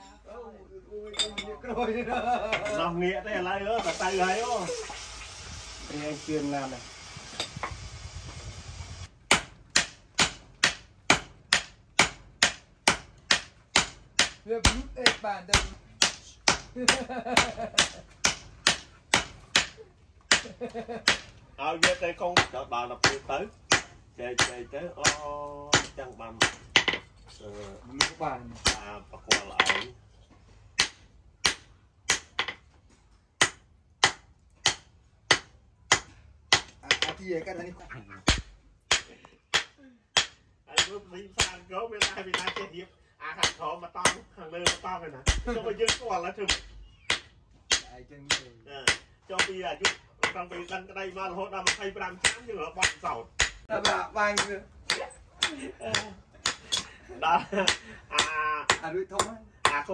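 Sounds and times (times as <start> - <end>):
hammers striking hot metal on anvil: 9.3 - 20.4, 38.3 - 42.7, 43.4 - 50.8, 51.6 - 56.9.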